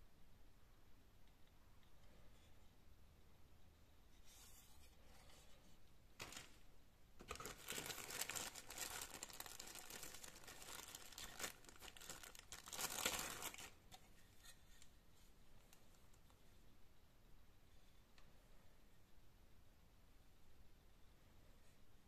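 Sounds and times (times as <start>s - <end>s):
plastic bag crinkling: 6.2s - 6.6s, 7.2s - 13.9s.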